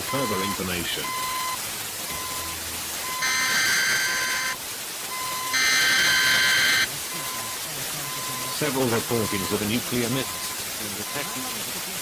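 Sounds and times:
harsh multi-tone alert blast: 0:00.0 - 0:04.6, 0:05.2 - 0:06.9
radio static hiss: 0:00.0 - 0:12.0
short high beeps: 0:00.1 - 0:08.6, 0:09.2 - 0:11.4.

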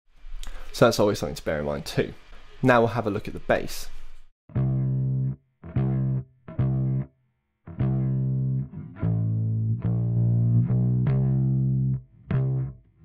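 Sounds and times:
plucked bass guitar notes: 0:04.5 - 0:07.1, 0:07.7 - 0:13.0.

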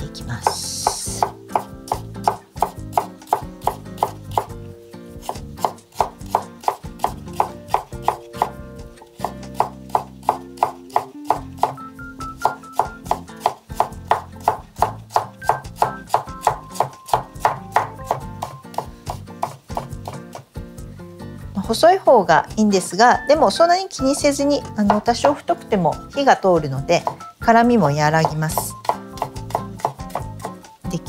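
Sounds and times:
soft background music: 0:00.0 - 0:31.0
knife chopping on cutting board: 0:00.4 - 0:04.6, 0:05.2 - 0:11.8, 0:12.4 - 0:20.5, 0:27.0 - 0:27.3, 0:28.2 - 0:30.6.

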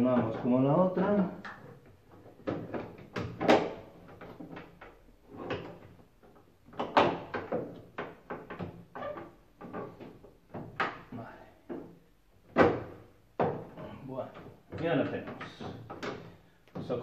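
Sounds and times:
plastic panel knocks and clicks: 0:01.5 - 0:09.0, 0:12.5 - 0:13.8.

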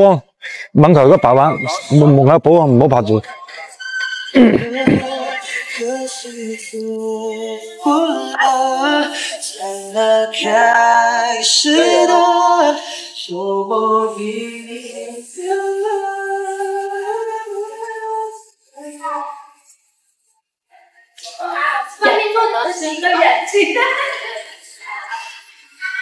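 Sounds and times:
woman singing: 0:03.2 - 0:12.6.

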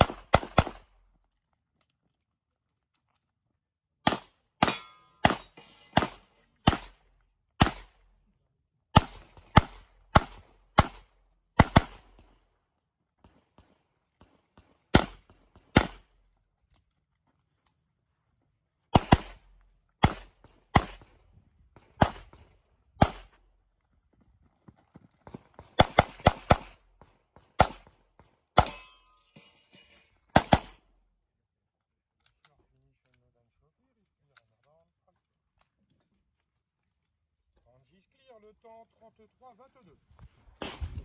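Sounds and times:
pistol shots: 0:00.0 - 0:00.8, 0:04.0 - 0:07.0, 0:07.6 - 0:08.0, 0:08.9 - 0:12.4, 0:13.2 - 0:16.1, 0:18.9 - 0:21.2, 0:21.8 - 0:23.3, 0:25.5 - 0:28.9, 0:30.3 - 0:30.8.

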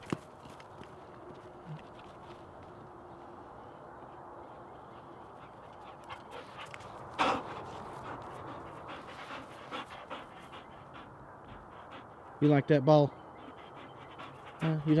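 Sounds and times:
dog breathing hard: 0:04.8 - 0:12.4, 0:13.1 - 0:15.0.

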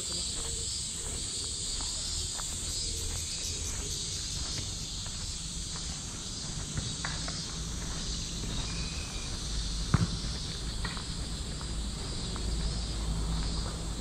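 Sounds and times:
cicadas chorus: 0:00.0 - 0:14.0
faint footsteps: 0:00.0 - 0:14.0
loud thump: 0:09.9 - 0:10.2.

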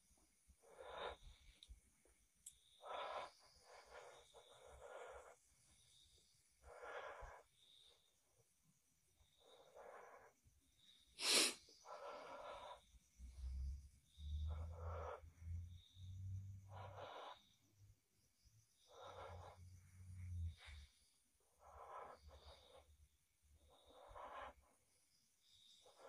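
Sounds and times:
breathing close to microphone: 0:11.2 - 0:12.5.

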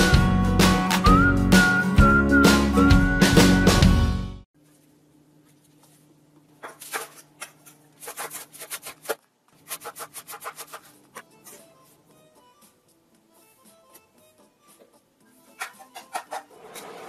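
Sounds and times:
faint light music: 0:11.1 - 0:17.0.

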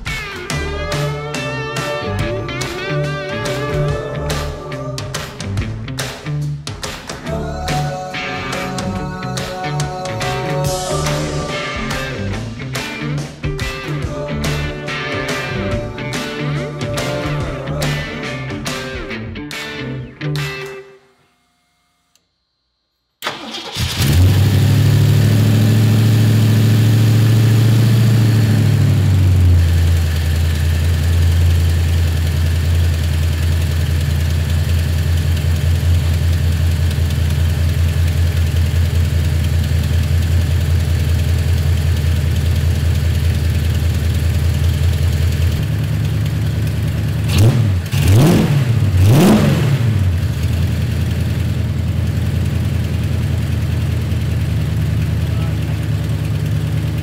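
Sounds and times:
car engine idling and revving: 0:23.2 - 0:57.0.

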